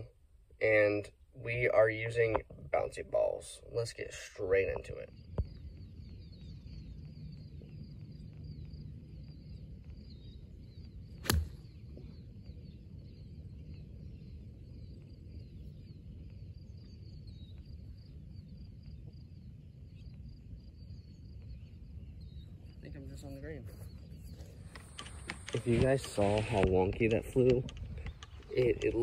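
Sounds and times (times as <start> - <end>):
birds chirping faintly: 0.0 - 29.0
low outdoor rumble: 0.0 - 29.0
golf club striking ball: 11.2 - 11.8.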